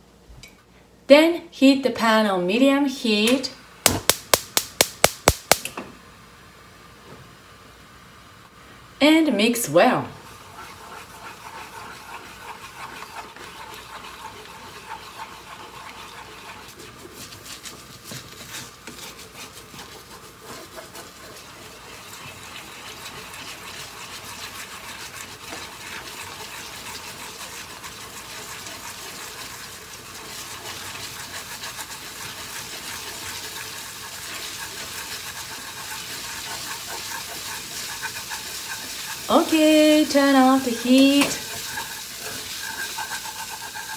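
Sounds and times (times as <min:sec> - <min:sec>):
egg sizzling in a frying pan: 0:10.2 - 0:18.1, 0:18.7 - 0:43.9
chopsticks scraping and tapping pan: 0:41.0 - 0:43.9.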